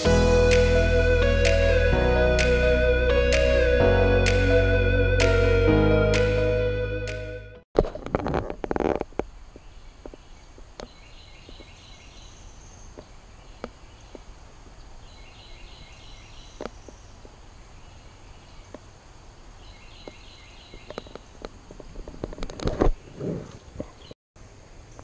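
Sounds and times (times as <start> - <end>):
bird call of high notes: 0.0 - 7.4.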